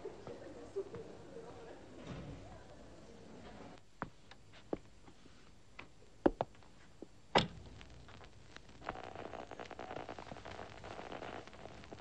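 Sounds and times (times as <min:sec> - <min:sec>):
crackling radio static: 0:07.4 - 0:12.0.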